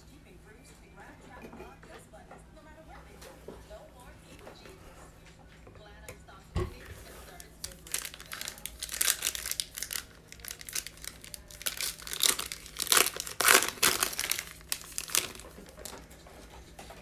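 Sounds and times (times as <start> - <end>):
foil wrapper tearing and crinkling: 7.2 - 16.1.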